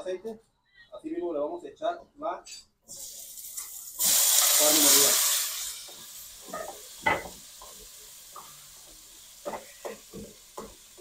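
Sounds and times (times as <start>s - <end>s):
meat sizzling in oil: 2.9s - 11.0s.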